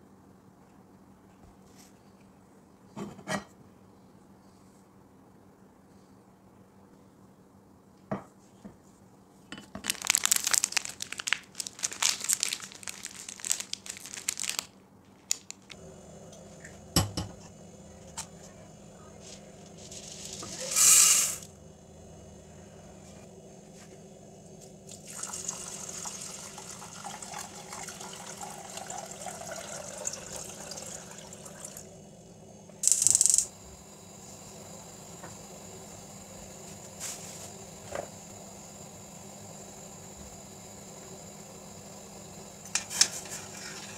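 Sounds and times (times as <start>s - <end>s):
lentils rattling into metal pot: 9.8s - 14.7s, 19.2s - 21.4s
liquid pouring: 24.8s - 31.9s.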